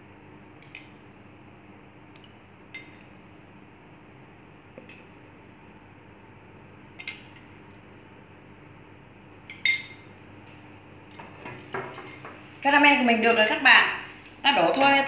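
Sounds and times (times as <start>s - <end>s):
bowls clinking: 9.5s - 10.1s.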